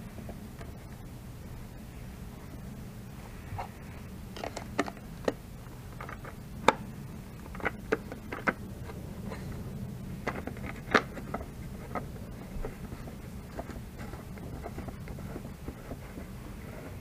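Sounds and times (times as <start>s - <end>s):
steady low hum: 0.0s - 17.0s
hands tapping plastic housing: 6.0s - 8.7s.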